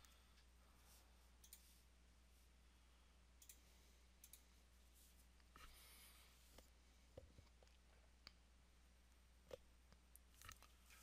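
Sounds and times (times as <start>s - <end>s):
faint computer mouse clicks: 1.4s - 1.7s.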